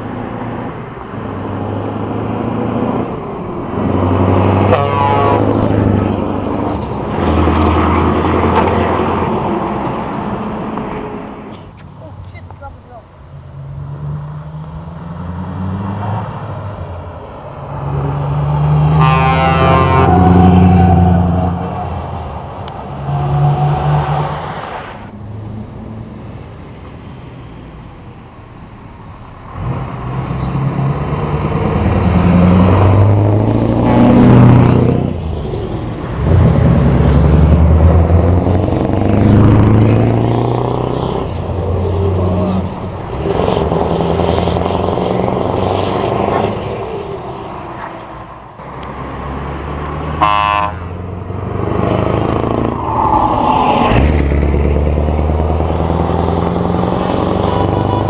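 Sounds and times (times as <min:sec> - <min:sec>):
diesel trucks driving past: 0:00.0 - 0:58.0
truck horn toot: 0:04.6 - 0:05.7, 0:08.4 - 0:09.1, 0:18.8 - 0:21.2, 0:50.1 - 0:51.0, 0:57.4 - 0:58.0.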